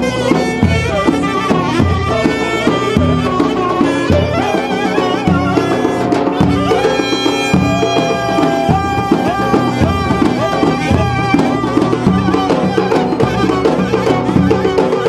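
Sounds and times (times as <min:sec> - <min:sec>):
clarinets playing melody: 0:00.0 - 0:15.0
bass drum beat: 0:05.2 - 0:15.0.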